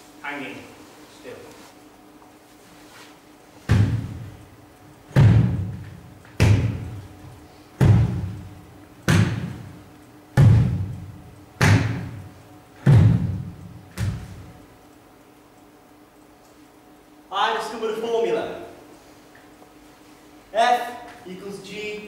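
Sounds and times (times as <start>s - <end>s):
heavy drum-like hits: 3.7s - 4.3s, 5.1s - 5.8s, 6.4s - 7.0s, 7.8s - 9.7s, 10.4s - 12.2s, 12.8s - 14.3s.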